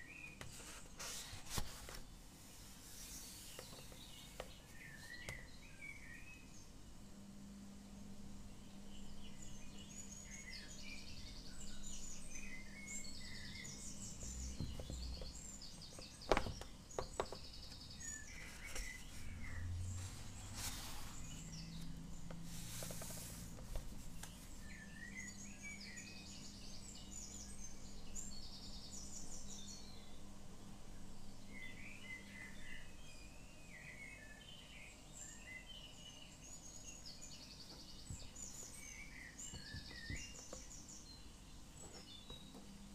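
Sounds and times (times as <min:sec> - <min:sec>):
small birds chirping: 0:00.0 - 0:42.9
paper page rustling: 0:00.5 - 0:02.1, 0:20.0 - 0:21.5, 0:22.5 - 0:24.6
steady low hum: 0:01.1 - 0:33.6.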